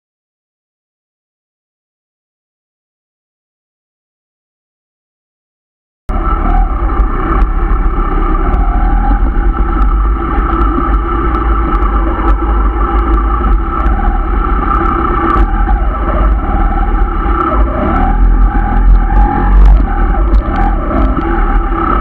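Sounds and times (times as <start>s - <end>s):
motorcycle engine running: 6.1s - 22.0s.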